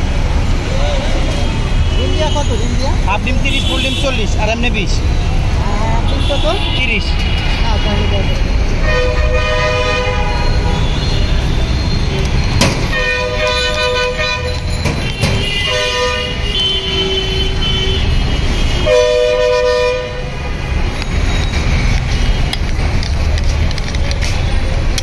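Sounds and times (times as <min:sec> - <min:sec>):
low traffic rumble: 0:00.0 - 0:25.0
vehicle horns honking: 0:01.4 - 0:04.6, 0:06.0 - 0:22.6.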